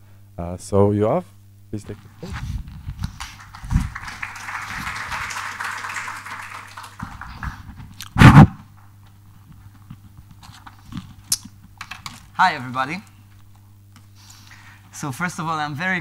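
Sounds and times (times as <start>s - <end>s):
quiet hum: 0.0s - 16.0s
microphone handling rustle: 1.9s - 3.9s
loud thump on microphone: 8.2s - 8.6s.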